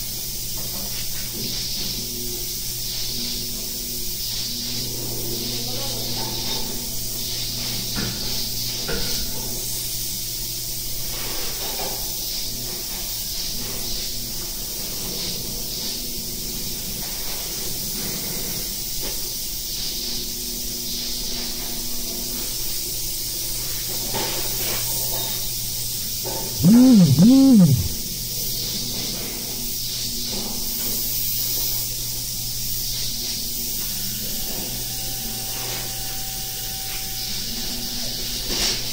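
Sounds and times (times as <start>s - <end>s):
low hum: 26.6s - 28.0s.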